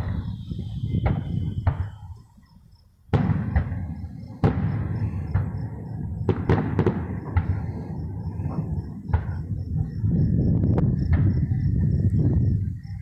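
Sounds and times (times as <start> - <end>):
firework cracks: 3.1 - 9.9
firework shells bursting: 3.1 - 10.0.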